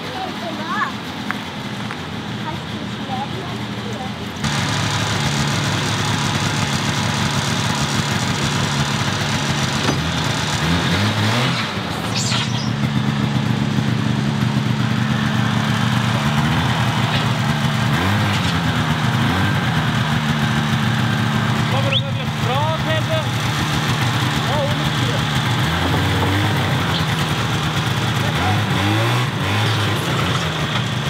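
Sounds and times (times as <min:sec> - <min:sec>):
snowmobile engine revving: 0:04.4 - 0:31.0.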